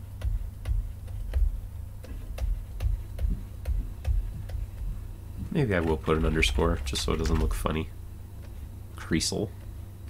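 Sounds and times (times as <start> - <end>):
stylus tapping on drawing tablet: 0.0 - 5.0.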